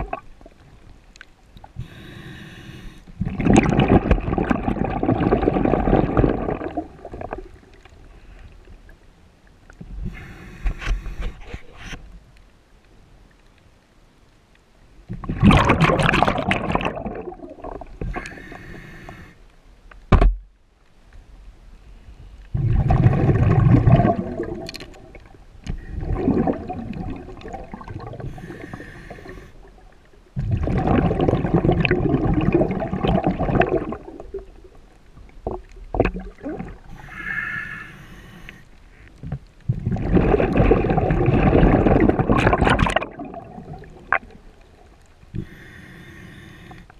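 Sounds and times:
exhaled bubbles rushing: 0:00.0 - 0:00.4, 0:03.2 - 0:07.7, 0:15.2 - 0:18.2, 0:22.6 - 0:34.8, 0:35.4 - 0:37.0, 0:39.7 - 0:44.9
regulator inhalation hiss: 0:01.8 - 0:03.0, 0:10.1 - 0:11.4, 0:18.1 - 0:19.4, 0:28.3 - 0:29.6, 0:36.9 - 0:38.7, 0:45.4 - 0:46.9.

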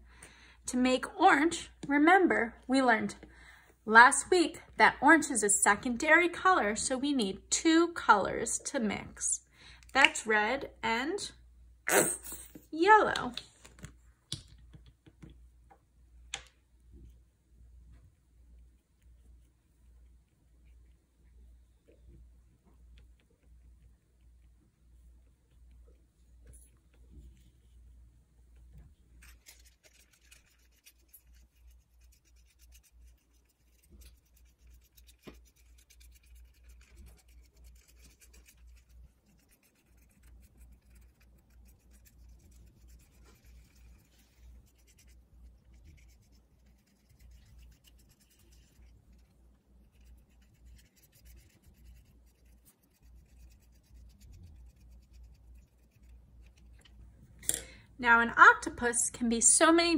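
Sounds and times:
low steady hum: 0:00.0 - 0:59.9
paintbrush strokes: 0:17.8 - 0:56.8.

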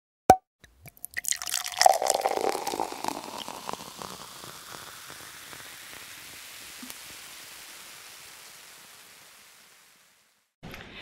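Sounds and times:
soft hiss: 0:02.9 - 0:10.6.

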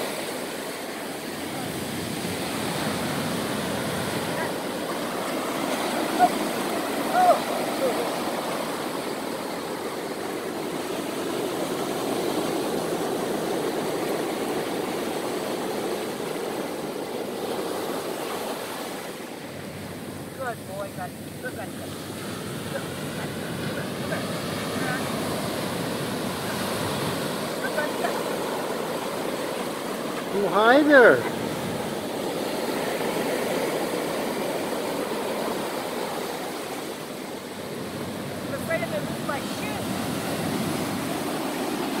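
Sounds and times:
ocean surf washing over shallows: 0:00.0 - 0:42.0.

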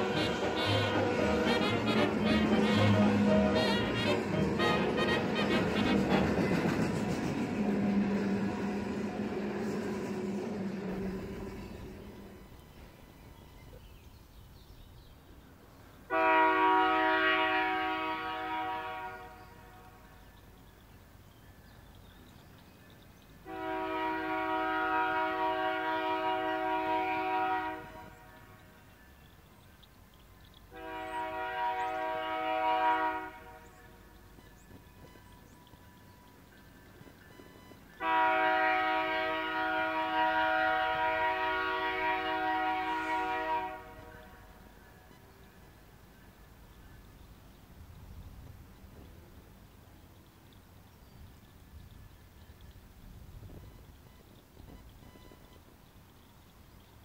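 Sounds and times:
locomotive air horn blasts: 0:00.0 - 0:06.9, 0:16.1 - 0:20.2, 0:23.4 - 0:28.8, 0:30.7 - 0:35.4, 0:37.0 - 0:45.3.

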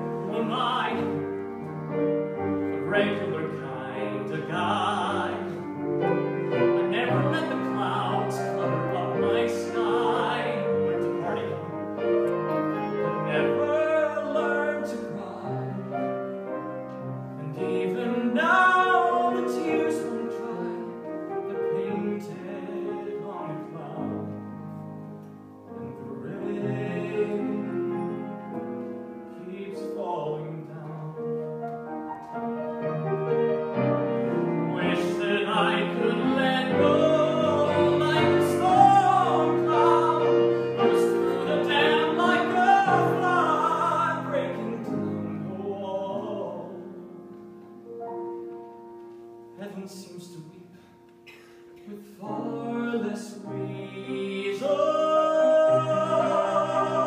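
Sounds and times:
man singing a ballad: 0:00.0 - 0:01.6, 0:02.6 - 0:11.9, 0:13.1 - 0:16.2, 0:17.3 - 0:24.4, 0:25.8 - 0:28.6, 0:29.3 - 0:31.6, 0:34.5 - 0:47.2, 0:49.5 - 0:50.9, 0:51.6 - 0:57.0
piano accompaniment: 0:00.0 - 0:57.0.

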